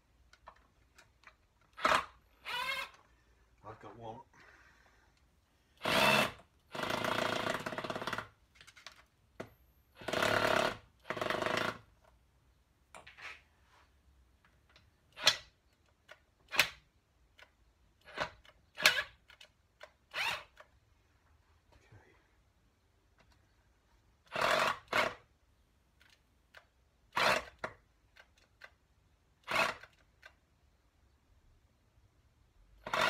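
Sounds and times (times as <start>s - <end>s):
impact driver rattling: 5.8s - 9.0s, 10.0s - 12.1s, 24.3s - 25.2s, 29.4s - 30.0s, 32.8s - 33.0s.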